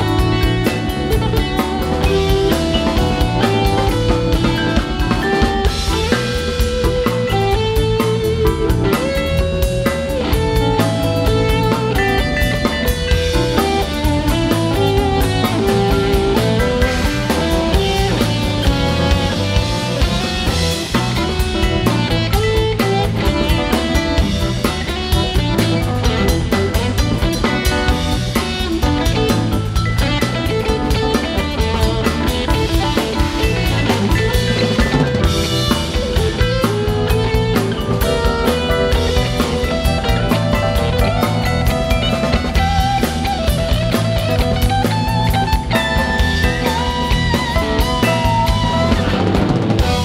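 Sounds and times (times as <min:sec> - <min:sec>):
bass: 0:00.0 - 0:50.0
drum kit: 0:00.0 - 0:50.0
electric guitar lead line: 0:00.0 - 0:50.0
rock band playing: 0:00.0 - 0:50.0.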